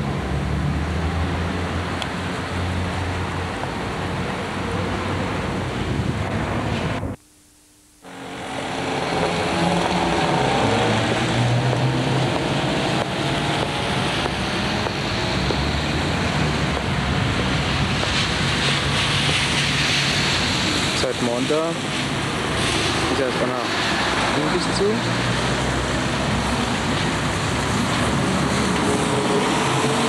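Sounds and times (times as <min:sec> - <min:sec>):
tyres hissing on wet road: 0:00.0 - 0:07.2, 0:08.0 - 0:30.0
car engine hum: 0:08.0 - 0:21.0.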